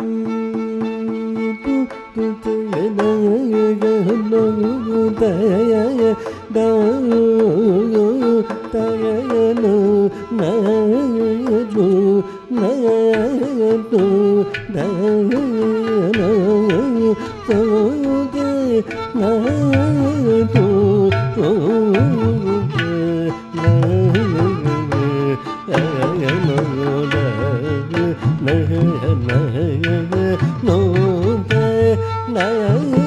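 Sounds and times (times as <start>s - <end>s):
man singing ornamented phrases: 0.0s - 33.0s
violin: 0.0s - 33.0s
percussion strokes: 12.3s - 33.0s.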